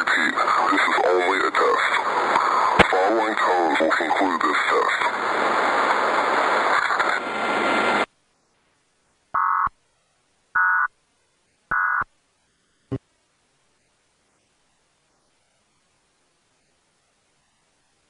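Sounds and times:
distorted broadcast alert audio: 0:00.0 - 0:07.6.

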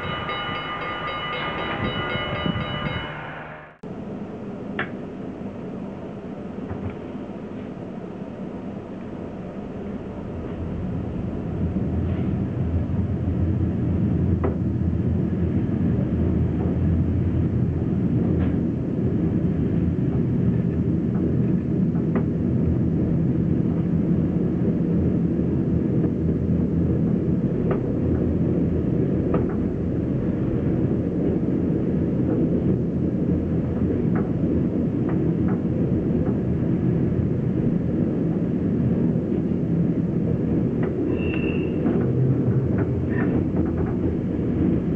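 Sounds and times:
train wheels rumbling: 0:00.0 - 0:03.8, 0:09.8 - 0:44.9.

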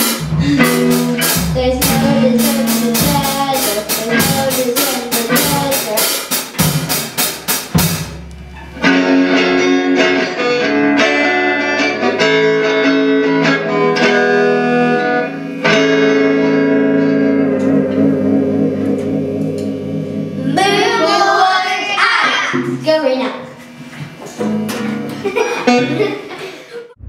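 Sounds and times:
electric guitar ringing chords: 0:00.0 - 0:05.7, 0:08.1 - 0:21.6, 0:24.4 - 0:26.2
drum hits: 0:00.0 - 0:09.0.

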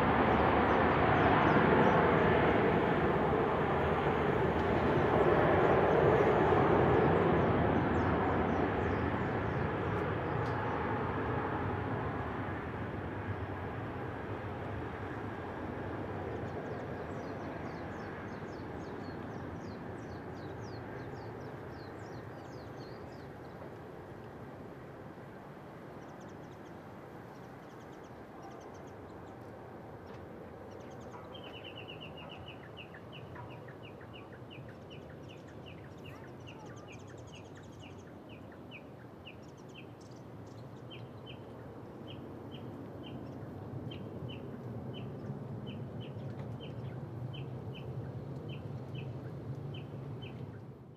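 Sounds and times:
distant jet engines roaring: 0:00.0 - 0:50.9
birds chirping: 0:30.6 - 0:50.6.

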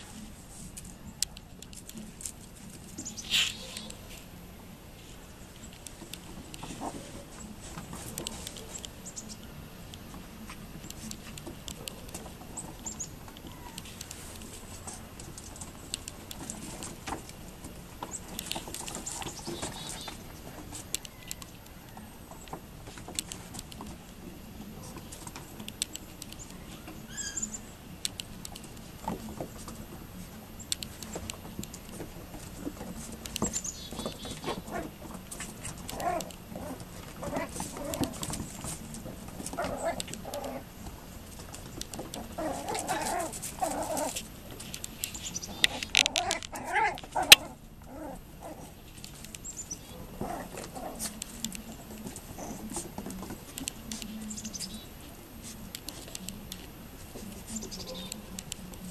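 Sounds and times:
puppies chirping: 0:18.1 - 0:20.2, 0:26.4 - 0:27.7
puppy claws clicking on wooden deck: 0:30.7 - 0:54.7.

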